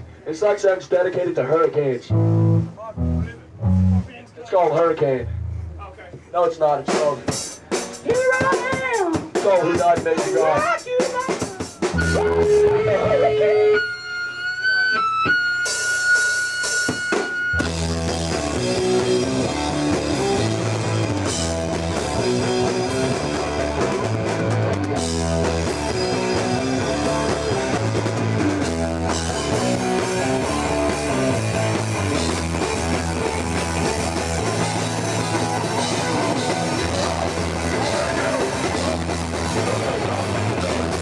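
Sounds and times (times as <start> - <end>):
distorted electric guitar: 2.0 - 4.2, 5.2 - 5.9, 11.8 - 41.0
bass guitar: 2.0 - 6.2, 6.9 - 41.0
drum kit: 2.1 - 4.2, 5.2 - 13.8, 14.8 - 41.0
held high tone: 11.8 - 17.6.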